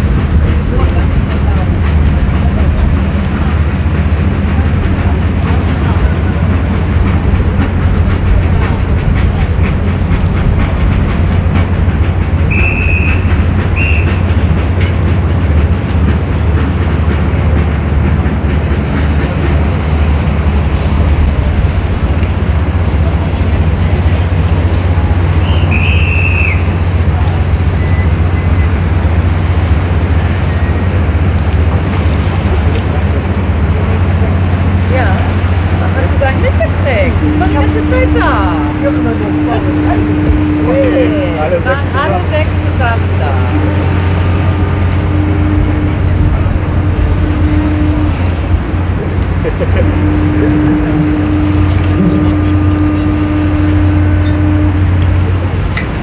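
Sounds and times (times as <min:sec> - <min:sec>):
boat engine droning: 0:00.0 - 0:56.0
high whistle tones: 0:12.5 - 0:14.2, 0:25.4 - 0:26.7.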